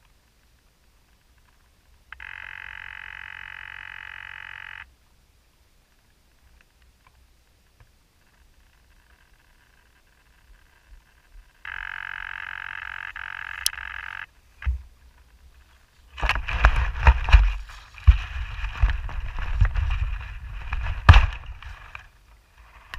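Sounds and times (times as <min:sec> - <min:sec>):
steady buzz: 0:09.2 - 0:14.8
sharp clicks: 0:11.6 - 0:14.8
foam rustling and knocks: 0:16.1 - 0:22.1.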